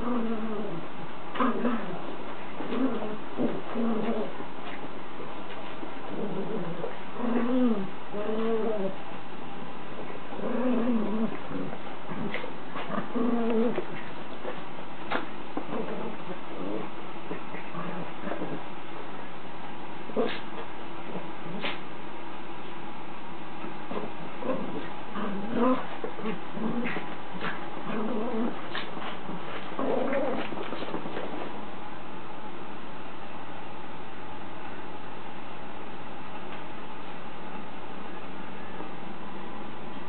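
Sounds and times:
dogs growling: 0.0s - 4.8s, 5.6s - 9.1s, 10.0s - 18.7s, 20.1s - 21.8s, 23.7s - 31.7s.

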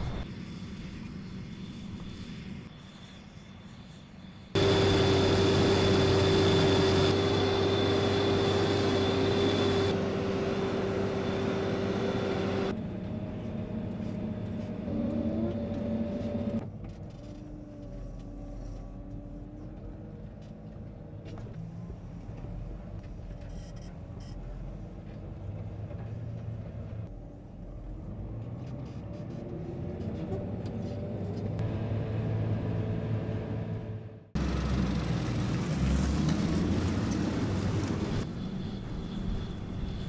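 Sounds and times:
high whine: 0.0s - 12.7s
tractor diesel engine working hard: 4.6s - 12.7s.

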